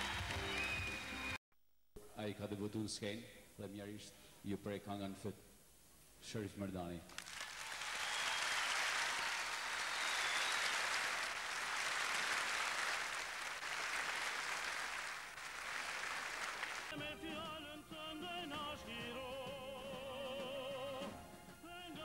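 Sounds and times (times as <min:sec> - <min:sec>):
audience applauding: 0:00.0 - 0:01.4, 0:07.1 - 0:17.0
person singing with vibrato: 0:16.9 - 0:22.0.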